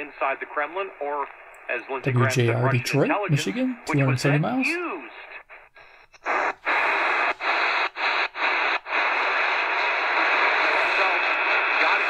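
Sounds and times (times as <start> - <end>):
radio static and hiss: 0.0 - 12.0.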